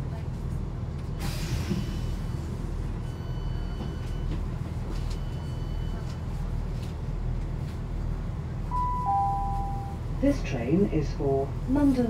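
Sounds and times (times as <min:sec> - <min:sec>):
long high-pitched beeps: 0:08.7 - 0:10.0.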